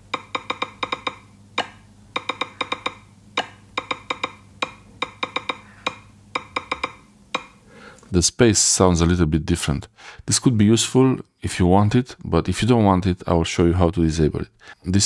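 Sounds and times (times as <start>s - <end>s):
phone keyboard clicks: 0.1s - 7.6s.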